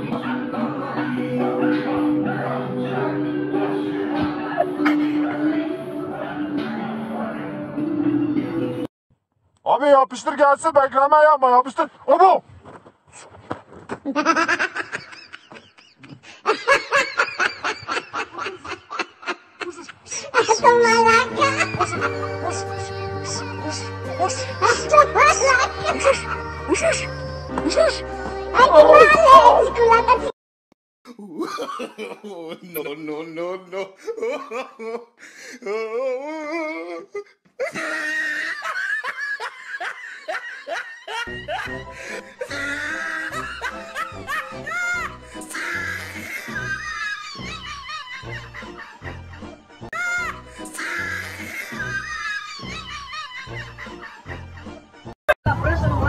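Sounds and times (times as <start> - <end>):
person laughing hard: 4.4 - 5.6, 14.1 - 22.6, 24.6 - 28.0, 31.1 - 54.8.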